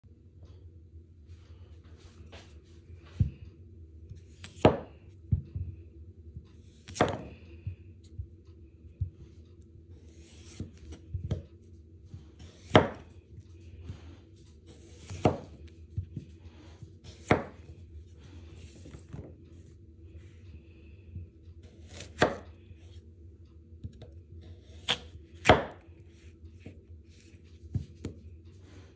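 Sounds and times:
knife slicing potato: 0:04.2 - 0:05.0, 0:06.6 - 0:07.4, 0:10.0 - 0:11.5, 0:12.4 - 0:13.2, 0:14.6 - 0:15.8, 0:17.0 - 0:17.8, 0:21.6 - 0:22.6, 0:23.8 - 0:28.2.

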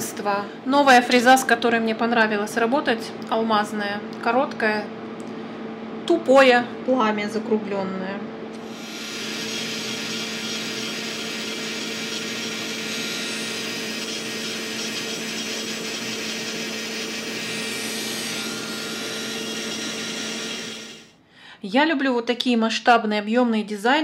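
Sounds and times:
electric nail drill grinding: 0:08.6 - 0:21.1.

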